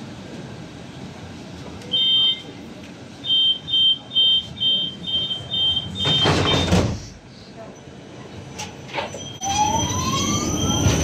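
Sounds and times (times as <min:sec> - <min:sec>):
tram door warning beeps: 0:01.9 - 0:02.6, 0:03.2 - 0:07.0, 0:08.7 - 0:11.0.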